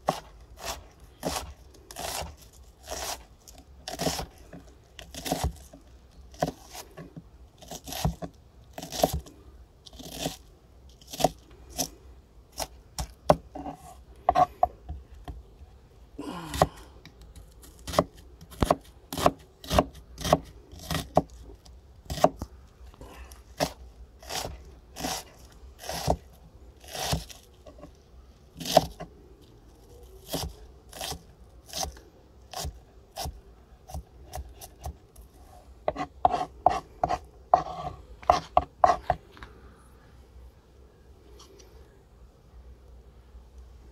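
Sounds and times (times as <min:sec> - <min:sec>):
knife dicing onion on wooden board: 0:00.0 - 0:09.3, 0:17.7 - 0:21.3, 0:22.1 - 0:22.4, 0:23.6 - 0:27.5, 0:28.6 - 0:29.1, 0:30.2 - 0:35.0, 0:35.9 - 0:39.2.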